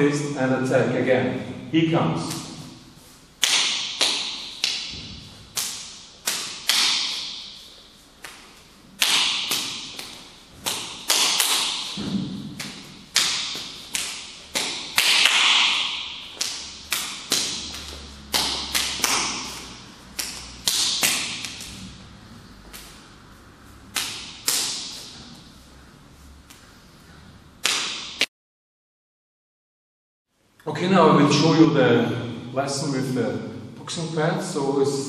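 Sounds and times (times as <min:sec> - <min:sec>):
hands slapping forearms: 0:02.2 - 0:02.7, 0:03.4 - 0:07.6, 0:08.2 - 0:21.9, 0:22.6 - 0:23.1, 0:23.8 - 0:25.4, 0:27.6 - 0:28.3.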